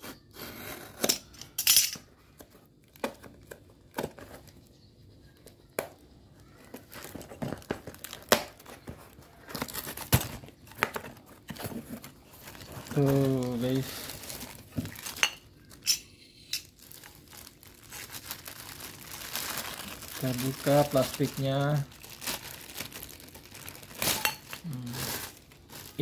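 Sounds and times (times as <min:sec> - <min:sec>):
packaging rustling: 0:06.4 - 0:15.9, 0:16.6 - 0:26.0
cardboard and tape ripping: 0:06.7 - 0:15.2, 0:16.9 - 0:26.0.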